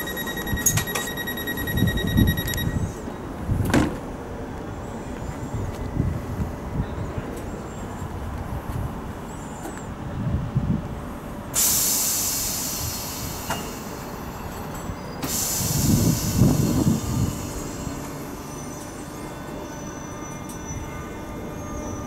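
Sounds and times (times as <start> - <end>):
low rumble of train wheels: 0.0 - 22.0
loud hiss of air: 11.5 - 14.6, 15.2 - 18.4.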